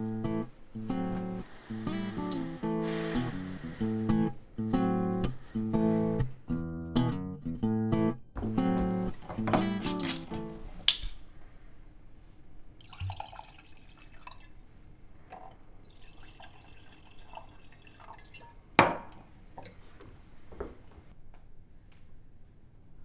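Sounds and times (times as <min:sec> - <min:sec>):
wine pouring into glass: 0:12.8 - 0:19.7.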